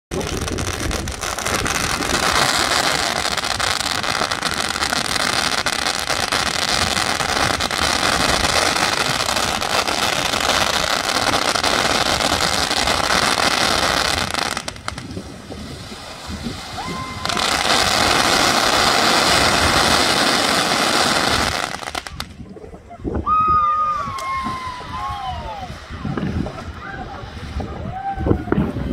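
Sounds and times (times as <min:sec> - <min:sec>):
fireworks crackling pops: 0:00.1 - 0:22.4.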